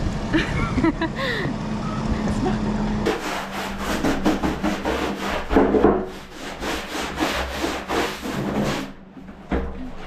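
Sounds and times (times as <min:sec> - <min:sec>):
quick rubbing strokes: 0:03.1 - 0:09.0.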